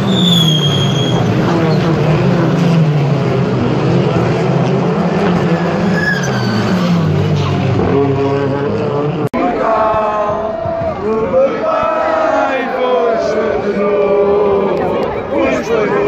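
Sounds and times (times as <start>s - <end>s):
race car engines passing: 0.0s - 11.6s.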